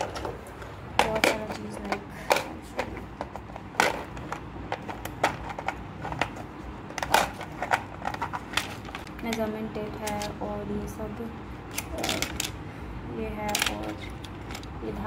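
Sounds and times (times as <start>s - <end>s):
plastic box clicks and knocks: 0.0s - 9.1s.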